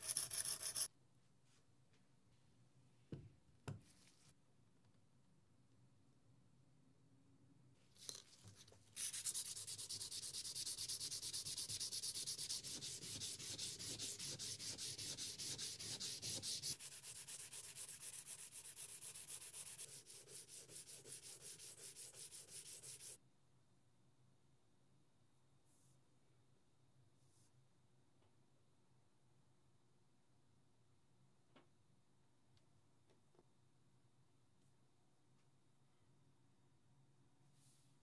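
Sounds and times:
rubbing on wet sharpening plate: 0.0 - 0.9.

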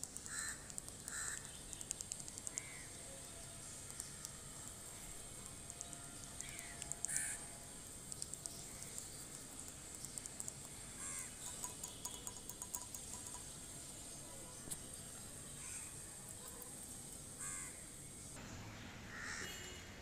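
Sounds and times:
crows cawing: 0.3 - 1.4, 2.5 - 2.9, 6.4 - 7.4, 11.0 - 11.4, 15.6 - 15.9, 17.4 - 17.9, 19.1 - 19.5.

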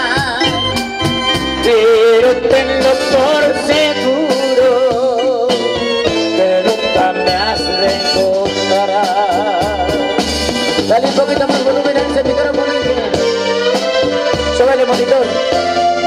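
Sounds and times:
congas: 0.0 - 16.0
live tropical band playing: 0.0 - 16.0
wavering melody line: 0.0 - 16.0.

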